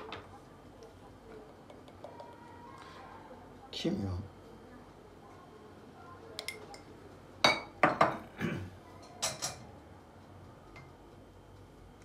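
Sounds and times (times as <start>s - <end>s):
kitchen utensils clinking on countertop: 7.4s - 8.3s, 9.0s - 9.7s.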